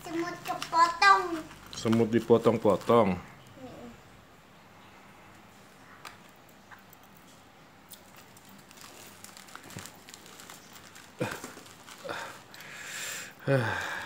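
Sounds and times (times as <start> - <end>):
plastic wrapping crinkling: 0.0 - 3.2, 7.3 - 14.0
small clicks and rustles: 0.0 - 3.6, 5.3 - 12.7.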